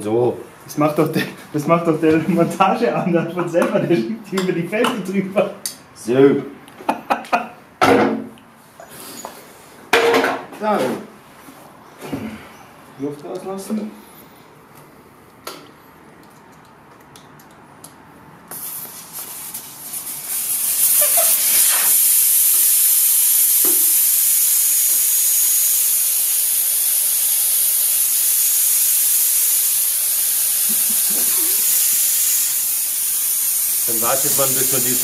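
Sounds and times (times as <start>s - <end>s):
air hissing from tyre valve: 18.5s - 35.0s.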